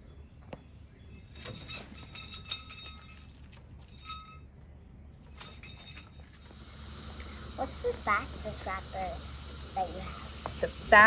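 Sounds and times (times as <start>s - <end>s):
high insect trill: 0.0s - 11.0s
light clinks and ticks: 0.5s - 4.5s, 5.3s - 6.6s.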